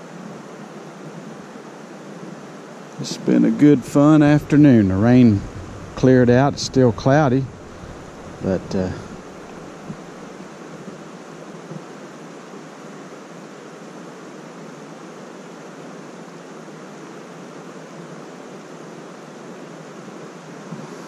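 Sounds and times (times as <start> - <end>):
creek water flowing: 1.4 - 10.7.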